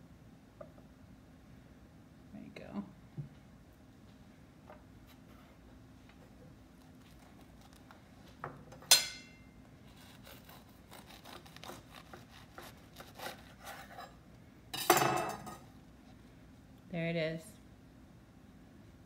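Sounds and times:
sharp clink: 8.9 - 9.5
knife sawing through bread: 9.9 - 14.2.

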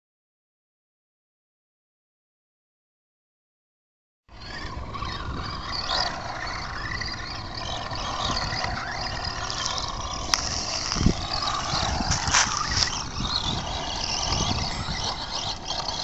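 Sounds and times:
remote control car motor whining: 4.3 - 16.0.

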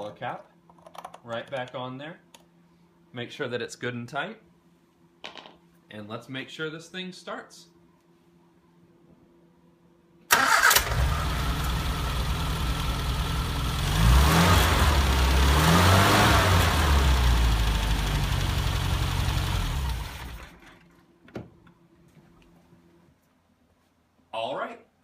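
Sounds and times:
car engine starting and idling: 10.3 - 20.8
car engine revving: 10.9 - 20.4.

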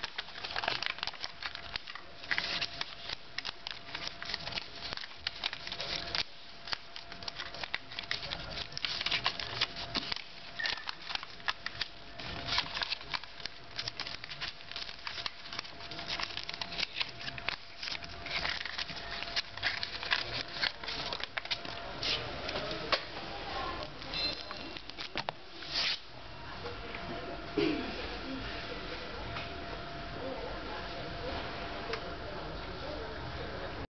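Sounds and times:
paper crinkling: 0.0 - 22.8, 23.8 - 26.0.

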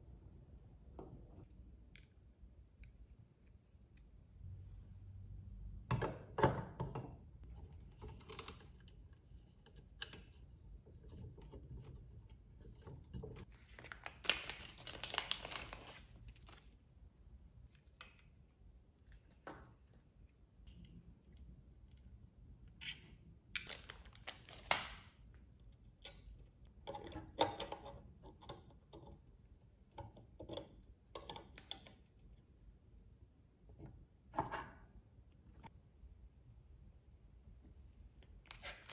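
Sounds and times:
plastic bags and paper rustling: 13.5 - 16.8, 23.7 - 25.0.

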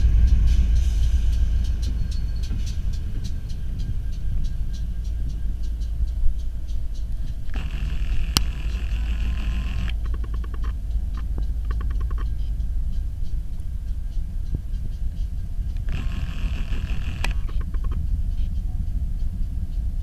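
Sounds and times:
diesel locomotive rumble: 0.0 - 20.0
hiss: 0.0 - 20.0
rapid clicks: 0.2 - 19.4
sharp click: 7.4 - 12.3, 15.7 - 18.0.

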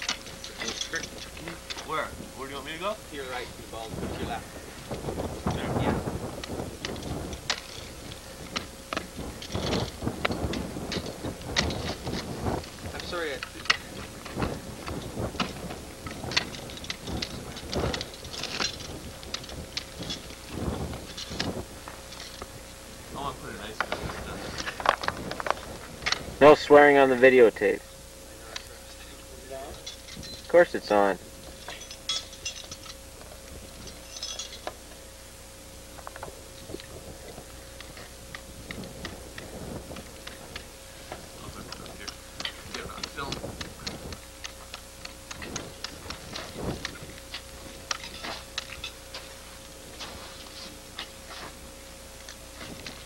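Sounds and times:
steady thin hum: 0.0 - 53.0
ice tools chipping ice: 6.8 - 21.6.

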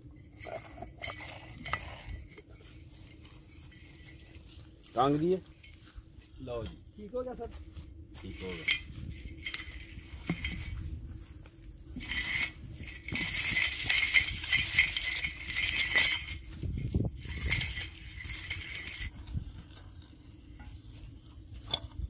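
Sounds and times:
chain pulley block rattling: 0.3 - 2.4, 8.4 - 10.8, 12.0 - 20.1.

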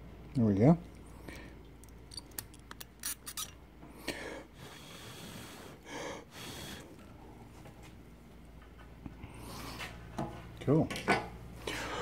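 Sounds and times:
short breaths: 3.9 - 7.2.

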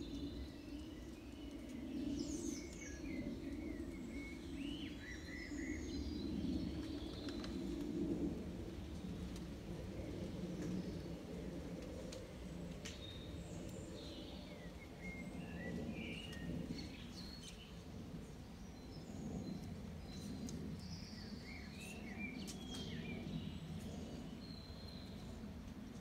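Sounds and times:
low outdoor rumble: 0.0 - 26.0
small birds chirping: 11.9 - 26.0.

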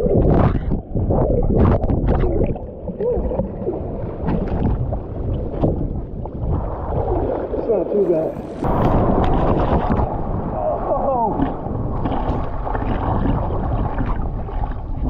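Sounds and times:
ocean water splashing: 0.0 - 15.0
heavy low rumble: 3.6 - 15.0.

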